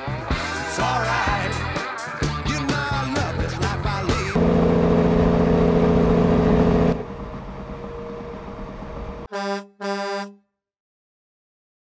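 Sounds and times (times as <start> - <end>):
short horn beep: 9.3 - 10.5.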